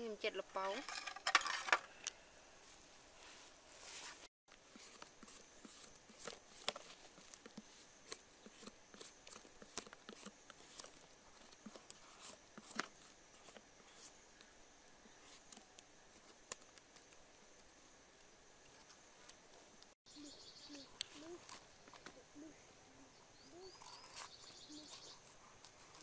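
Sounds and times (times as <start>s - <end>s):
knife scraping pumpkin peel: 3.8s - 14.2s.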